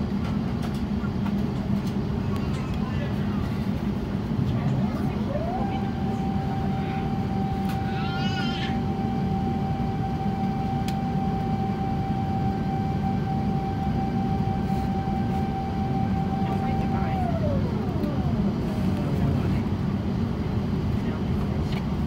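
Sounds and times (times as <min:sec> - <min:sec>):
aircraft cabin rumble: 0:00.0 - 0:22.0
mechanical whine: 0:04.6 - 0:19.8.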